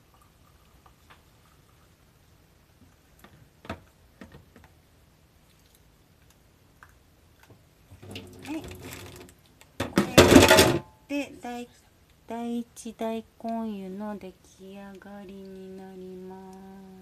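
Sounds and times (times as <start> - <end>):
water pouring into mugs: 0.0 - 2.0, 7.9 - 9.3
kettle clattering on metal counter: 9.8 - 10.9.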